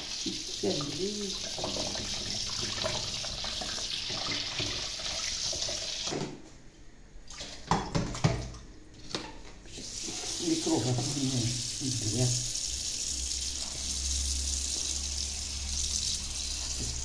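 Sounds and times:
tap water splashing in sink: 0.0s - 6.4s, 7.3s - 11.6s, 16.6s - 17.0s
dishes clattering in sink: 1.4s - 6.4s, 7.6s - 10.2s.

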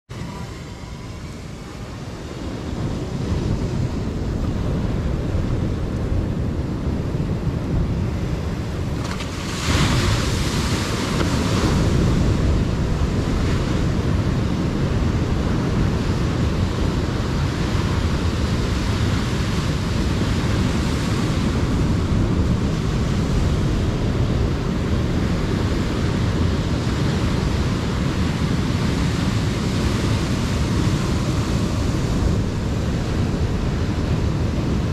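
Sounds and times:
wind buffeting microphone: 0.1s - 34.9s
surf breaking on rocks: 8.8s - 14.4s.

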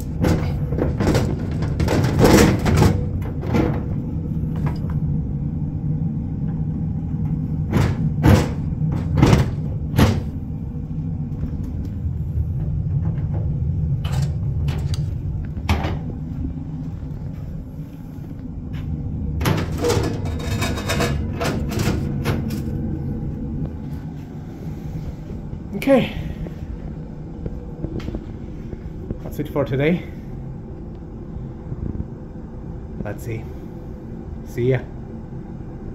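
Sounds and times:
burner rumble and hum: 0.0s - 35.9s
knocks and rattles on metal casing: 0.1s - 4.0s.

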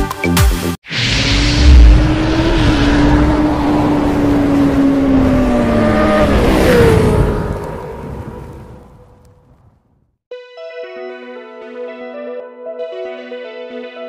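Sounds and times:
loud hit: 0.9s - 4.8s
motorcycle engine high revs: 1.3s - 8.1s.

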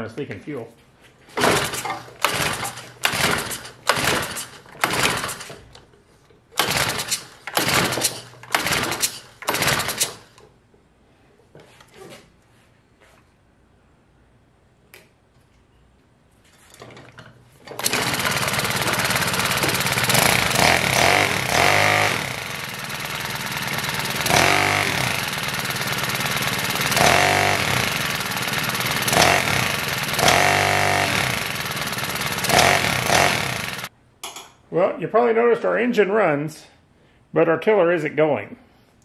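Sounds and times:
small engine revving: 1.4s - 5.5s, 6.6s - 10.2s, 17.8s - 33.9s.

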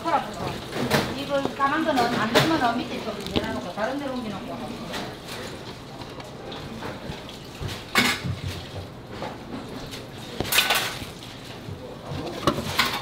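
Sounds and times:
metal kitchenware clattering: 7.9s - 8.7s, 10.5s - 11.2s, 12.2s - 13.0s.

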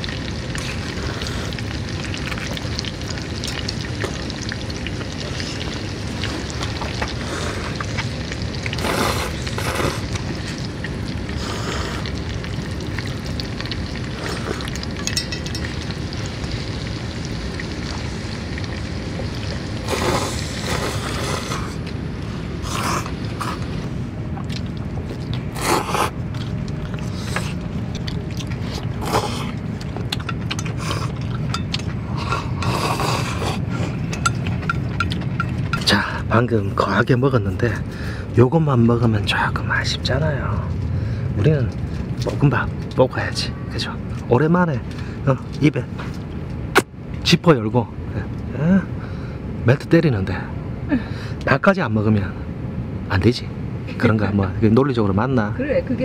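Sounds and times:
people slurping noodles: 0.5s - 2.6s, 5.2s - 10.6s, 11.2s - 13.2s, 14.0s - 14.9s, 19.8s - 35.1s.

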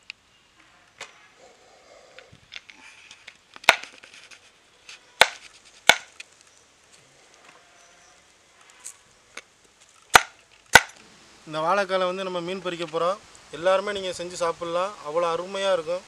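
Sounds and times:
quiet scraping and rustling: 0.0s - 11.4s.

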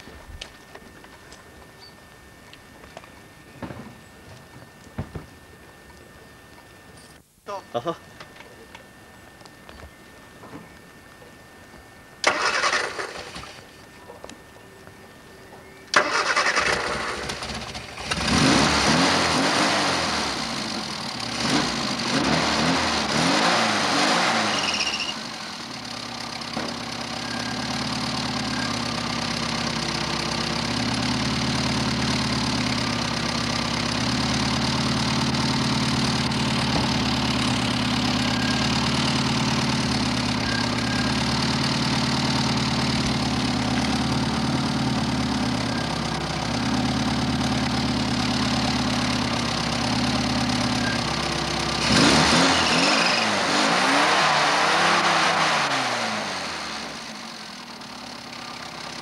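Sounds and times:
car engine revving and idling: 16.6s - 59.0s.

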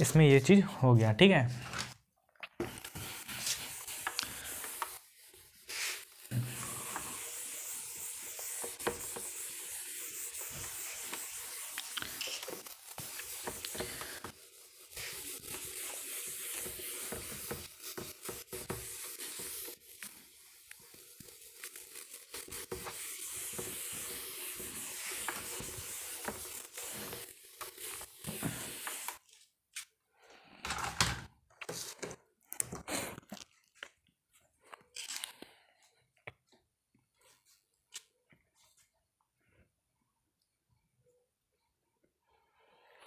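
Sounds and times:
eraser wiping whiteboard: 2.6s - 29.4s.

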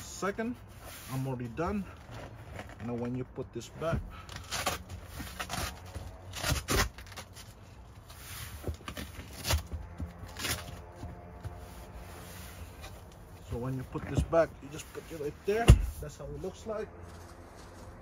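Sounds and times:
hands scraping and rustling mat: 0.0s - 7.4s.

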